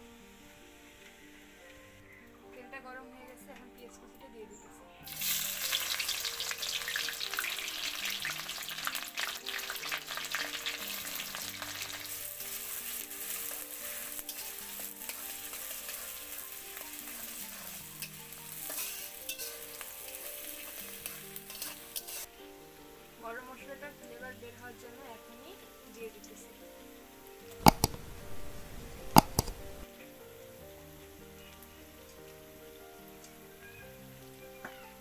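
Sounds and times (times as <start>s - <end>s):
onions sizzling in hot oil: 0.0s - 2.9s, 5.0s - 35.0s
spatula scraping and clicking: 17.1s - 22.3s, 27.6s - 28.0s, 29.2s - 29.6s.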